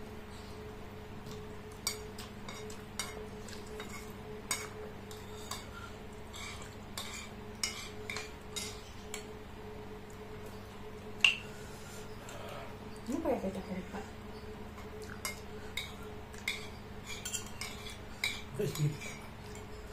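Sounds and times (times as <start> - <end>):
cutlery clinking on ceramic bowls: 15.2 - 19.9.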